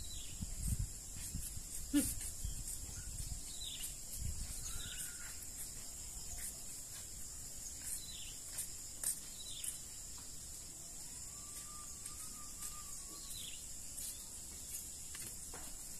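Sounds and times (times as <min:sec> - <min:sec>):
birds chirping: 0:00.0 - 0:10.0
high-pitched insect chorus: 0:00.0 - 0:15.9.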